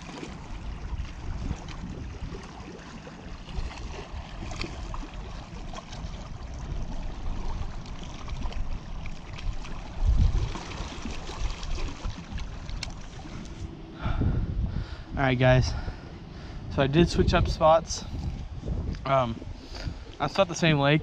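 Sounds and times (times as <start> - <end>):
small waves lapping shore: 0.0 - 14.2
wind rumbling on microphone: 0.0 - 21.0.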